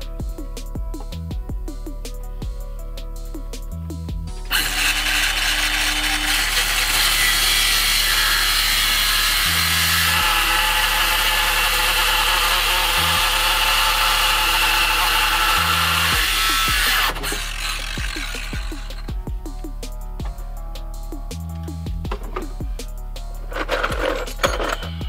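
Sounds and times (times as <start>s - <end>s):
background music: 0.0s - 25.0s
power saw cutting wood: 4.4s - 19.2s.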